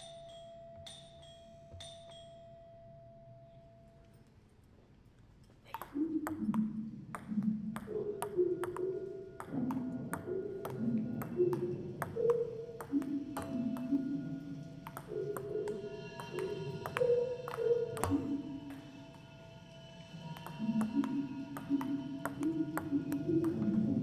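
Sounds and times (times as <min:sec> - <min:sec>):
struck bell tones: 0:00.0 - 0:04.2
ping pong ball bouncing: 0:05.7 - 0:14.2, 0:14.8 - 0:18.8, 0:20.4 - 0:24.0.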